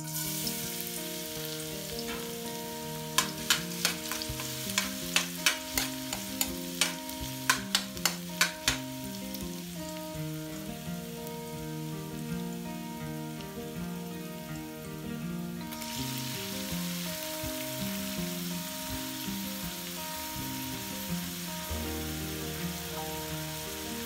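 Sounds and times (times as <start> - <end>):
garlic sizzling in hot oil: 0.0 - 24.0
metal ladle clinking on wok: 3.1 - 9.0.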